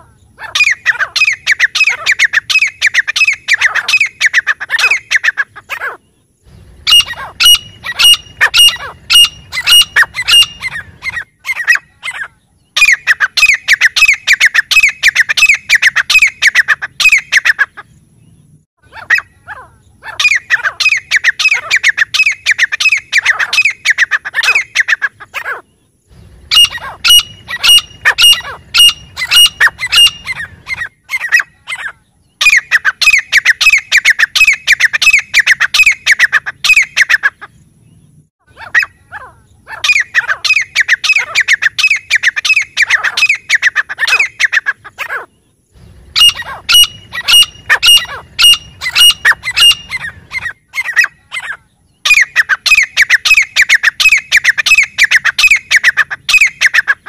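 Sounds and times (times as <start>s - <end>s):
bird harsh repeated calls: 0.0s - 6.2s, 6.8s - 18.0s, 18.8s - 25.8s, 26.4s - 37.6s, 38.4s - 57.0s.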